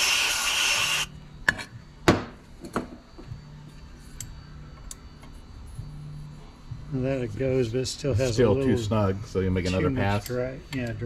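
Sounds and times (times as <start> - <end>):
aerosol can spraying: 0.0 - 1.1.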